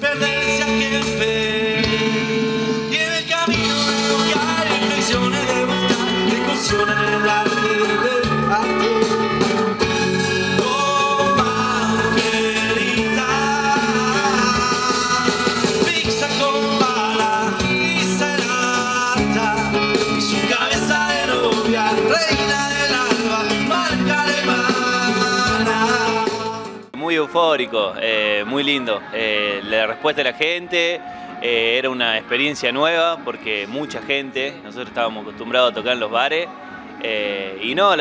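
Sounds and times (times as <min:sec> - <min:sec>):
drums: 0:00.0 - 0:27.0
electric guitar: 0:00.0 - 0:27.0
man singing: 0:00.0 - 0:32.5
acoustic guitar: 0:00.0 - 0:37.7
keyboard: 0:00.0 - 0:38.0.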